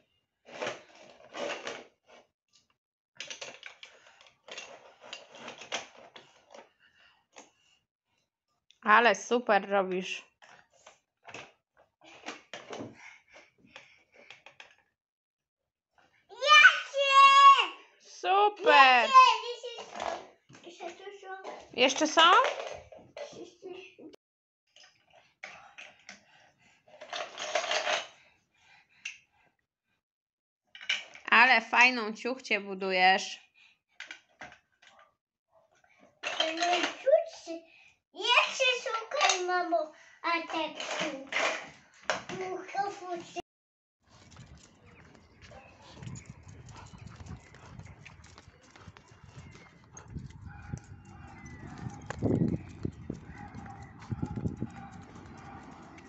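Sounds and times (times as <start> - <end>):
plastic blocks clattering: 36.2 - 37.1.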